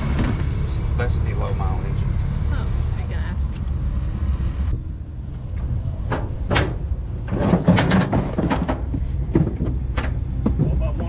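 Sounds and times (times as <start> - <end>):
boxes knocking and rattling: 6.1 - 11.0.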